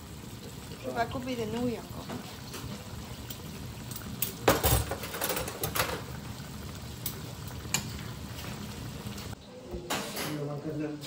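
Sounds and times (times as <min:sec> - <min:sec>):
sauce simmering in a frying pan: 0:00.0 - 0:09.6
pans and utensils clinking: 0:02.0 - 0:06.2, 0:07.0 - 0:08.6, 0:09.8 - 0:10.6.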